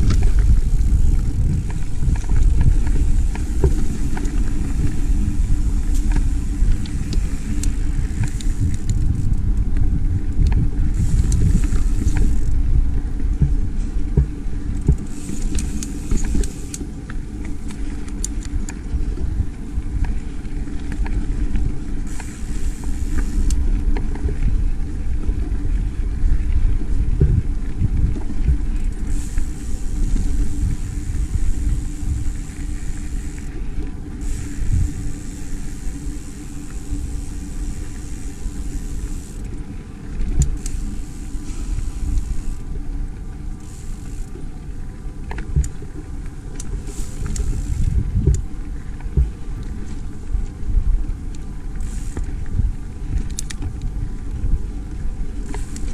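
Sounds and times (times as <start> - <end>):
bike tyres rumbling on dirt: 0.0 - 55.9
wind over microphone: 0.0 - 55.9.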